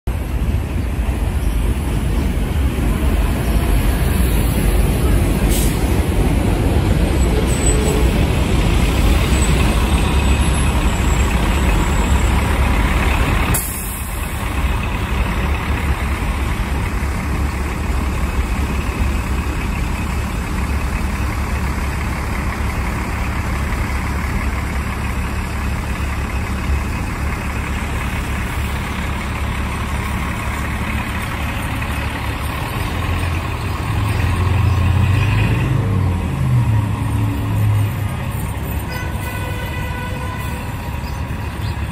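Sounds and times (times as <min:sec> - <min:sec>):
bus diesel engine rumbling: 0:00.0 - 0:41.9
air brake hissing: 0:05.4 - 0:06.0.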